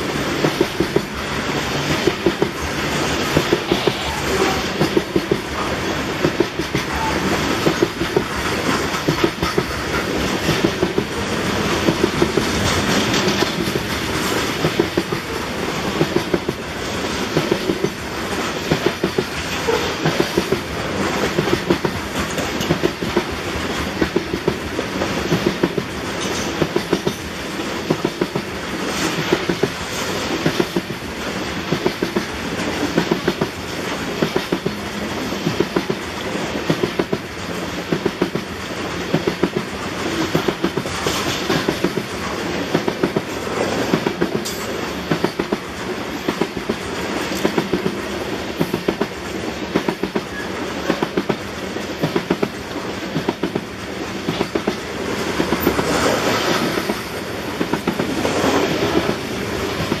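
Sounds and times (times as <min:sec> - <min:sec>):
train wheels rumbling: 0:00.0 - 1:00.0
wheels clickety-clack over track: 0:00.0 - 1:00.0.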